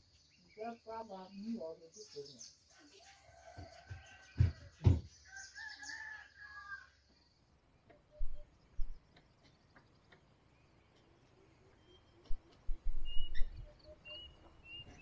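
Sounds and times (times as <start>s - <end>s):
rooster crowing: 2.9s - 7.0s.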